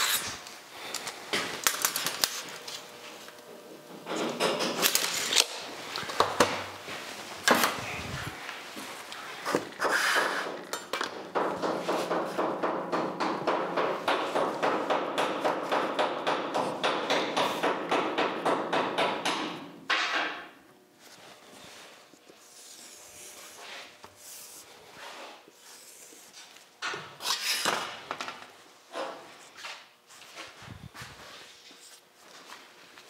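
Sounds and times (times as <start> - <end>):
hand rubbing a steel sheet: 21.0 - 26.6.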